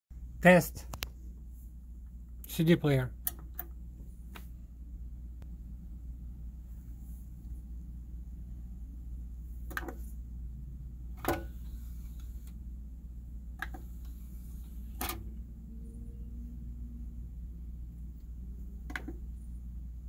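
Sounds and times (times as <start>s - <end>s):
steady low hum: 0.1s - 20.0s
cd player disc tray clicks and clunks: 11.2s - 11.5s.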